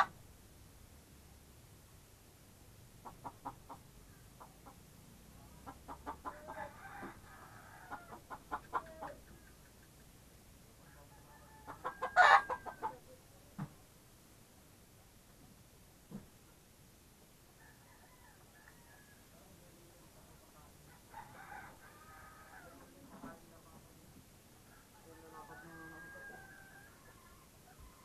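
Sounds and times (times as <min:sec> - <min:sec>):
chickens clucking: 0:03.0 - 0:07.2, 0:07.8 - 0:13.8.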